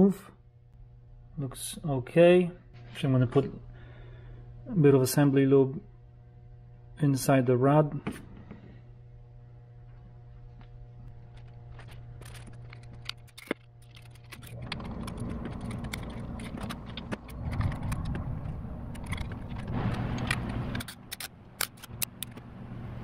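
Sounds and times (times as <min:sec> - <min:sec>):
steady low hum: 0:00.0 - 0:23.0
rustling rumble: 0:09.7 - 0:20.8
metal clinks and rattles: 0:11.7 - 0:18.2.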